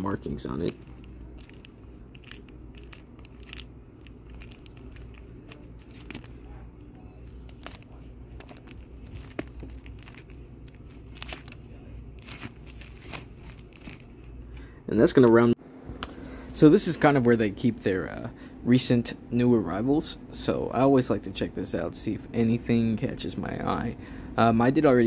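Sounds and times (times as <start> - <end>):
low steady hum: 0.0 - 25.0
plastic sleeves crinkling: 0.1 - 15.4.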